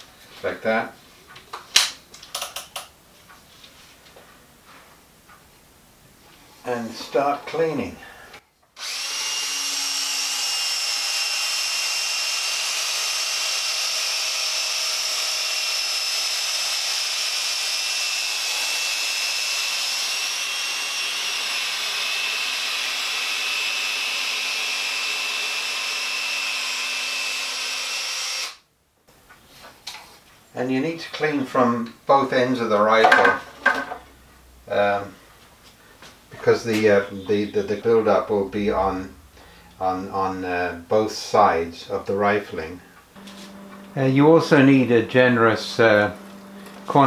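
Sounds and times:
electric drill whining: 0:08.8 - 0:28.6, 0:43.2 - 0:47.0.

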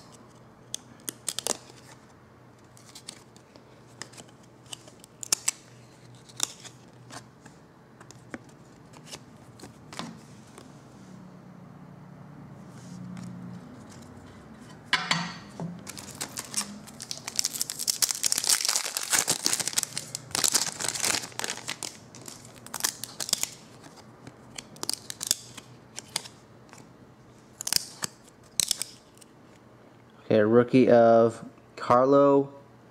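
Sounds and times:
cards rustling and clicking: 0:00.1 - 0:02.0, 0:02.6 - 0:10.7, 0:15.9 - 0:26.9
wrapper tearing and crinkling: 0:15.9 - 0:26.3, 0:27.6 - 0:29.0.

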